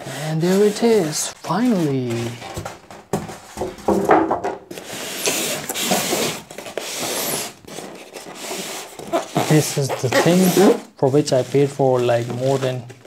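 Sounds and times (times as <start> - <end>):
plastic rustling over foam: 0.0 - 3.6, 4.7 - 13.0
knock on packaging: 3.1 - 4.6.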